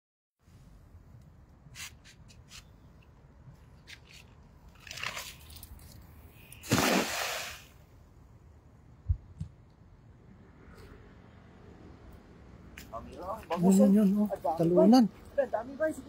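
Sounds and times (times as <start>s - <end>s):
net splashing into river: 4.7s - 5.7s, 6.6s - 7.8s.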